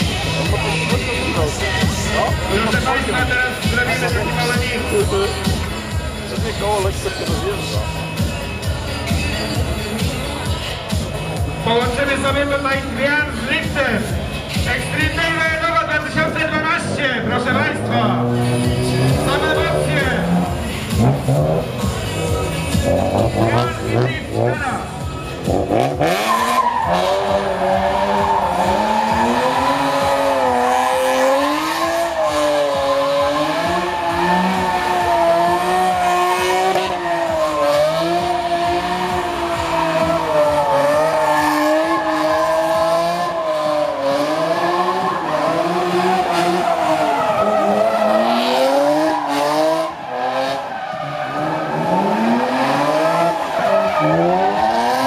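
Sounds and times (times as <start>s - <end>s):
car engine revving high: 15.0s - 55.0s
tyres squealing: 16.0s - 55.0s.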